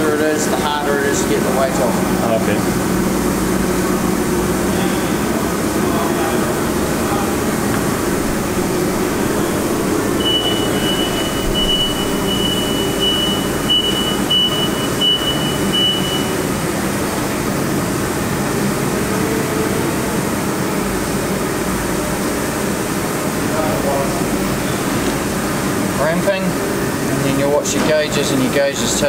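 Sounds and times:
balancing machine spinning: 1.1 - 19.6
high beeps: 9.2 - 16.4.

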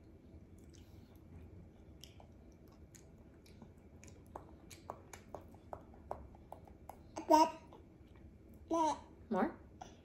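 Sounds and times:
person chewing: 0.4 - 7.1
wet mouth clicks and smacks: 1.9 - 7.1.

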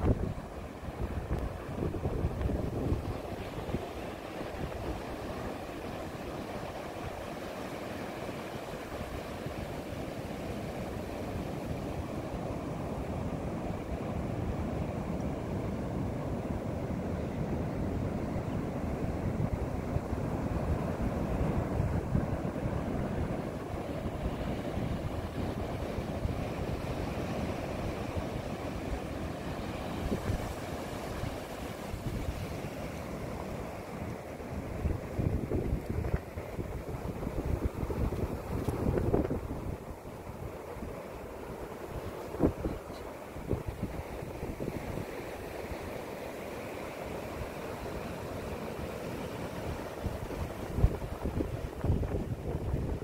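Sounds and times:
wind buffeting microphone: 0.0 - 7.3, 11.0 - 32.7, 34.5 - 45.1, 49.8 - 53.0
ocean surf breaking: 0.0 - 53.0.

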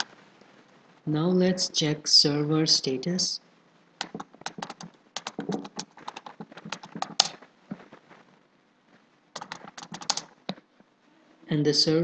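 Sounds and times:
keyboard typing: 4.0 - 8.1, 9.4 - 10.6.

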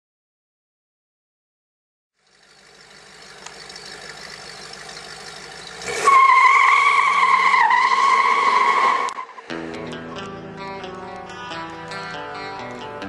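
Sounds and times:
car engine accelerating: 2.2 - 12.7
tyres squealing: 5.6 - 9.5.

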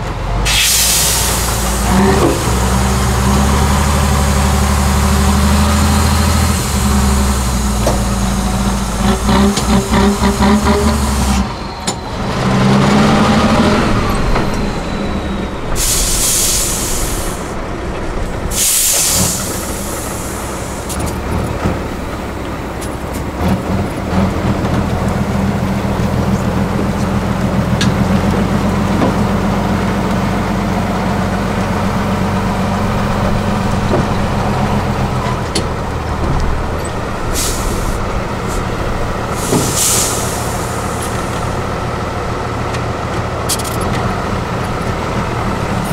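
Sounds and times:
diesel truck engine under load: 0.0 - 45.9
air brakes hissing: 0.4 - 12.2, 13.4 - 17.6, 18.4 - 21.2, 37.2 - 41.6.

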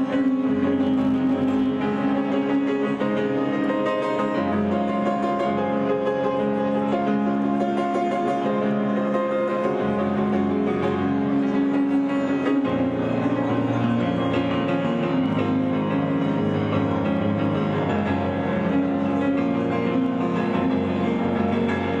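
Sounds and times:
instrumental music with held notes: 0.0 - 22.0.

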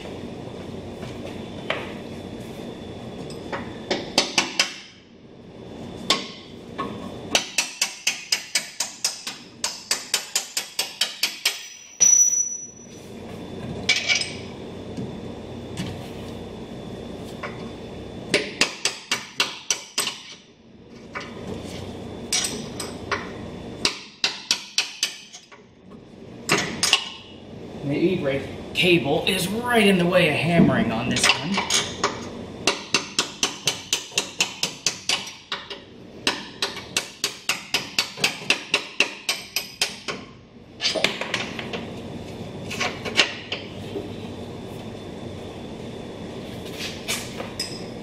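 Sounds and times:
high metallic ring: 11.5 - 13.1.

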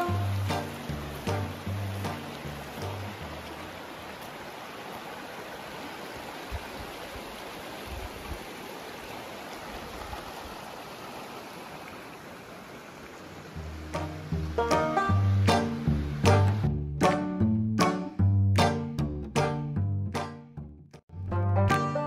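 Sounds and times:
creek running over rocks: 0.0 - 16.7.

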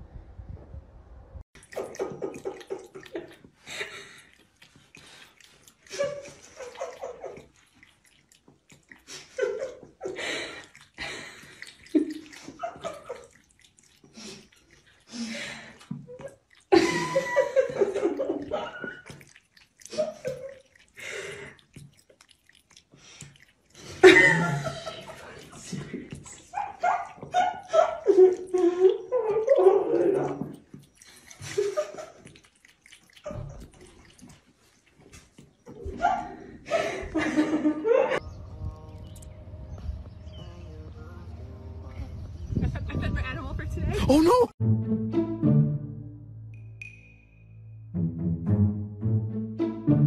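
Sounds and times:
water running in sink: 1.6 - 37.7.

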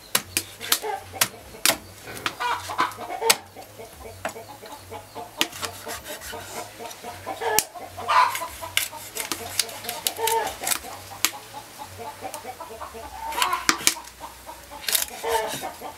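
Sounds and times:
animal calls: 0.0 - 15.9
cleaver chopping on wooden block: 0.1 - 3.5, 5.4 - 6.6.

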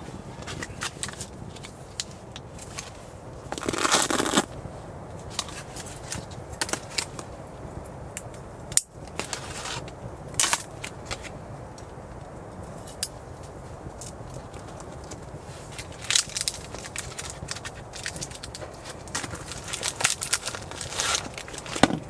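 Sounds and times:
plastic packet rustling: 3.5 - 4.5, 15.7 - 22.0
sharp clicks and crackles: 8.1 - 22.0.

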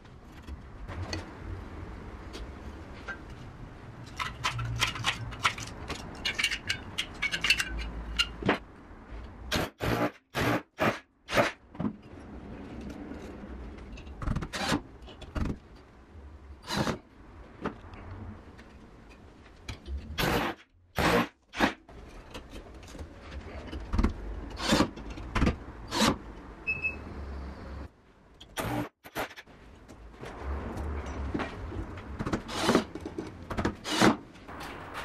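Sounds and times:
metal clicks and knocks: 4.0 - 8.7.

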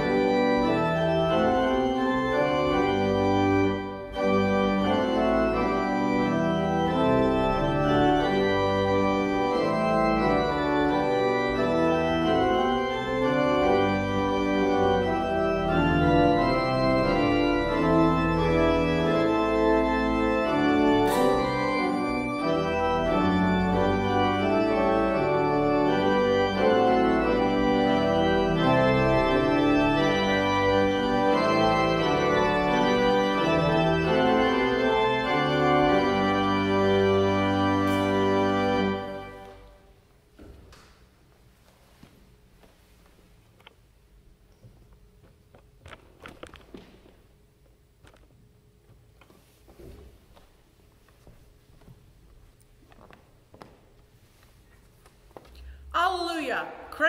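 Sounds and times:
church organ playing chords: 0.0 - 40.4.

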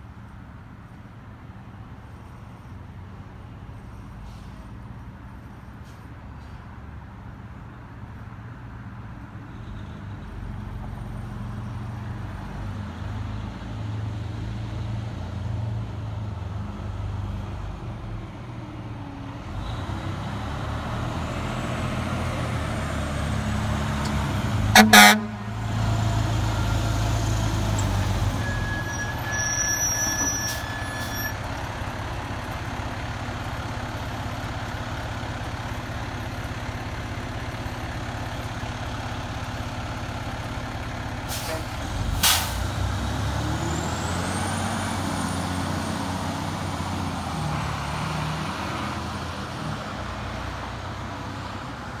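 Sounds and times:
diesel truck engine: 0.0 - 52.0
air brake hiss: 4.1 - 4.7, 41.3 - 42.6.

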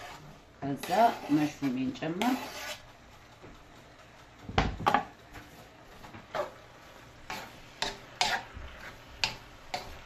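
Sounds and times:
wooden spoon scraping a pan: 0.0 - 3.0, 4.9 - 10.0
faint frying sizzle: 4.5 - 10.0.

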